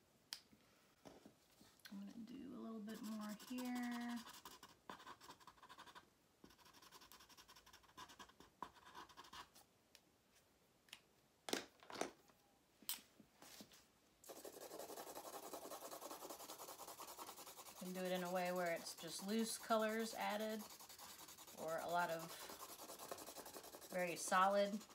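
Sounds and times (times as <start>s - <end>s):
markers scratching on paper: 2.9s - 9.5s, 14.3s - 24.9s.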